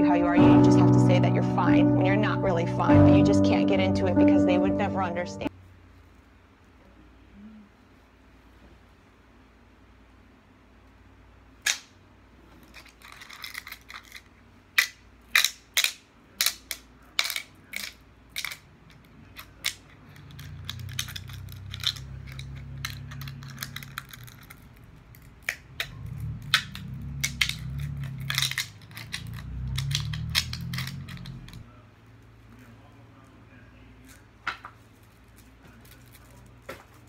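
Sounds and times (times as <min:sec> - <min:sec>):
low steady hum: 0:00.0 - 0:37.0.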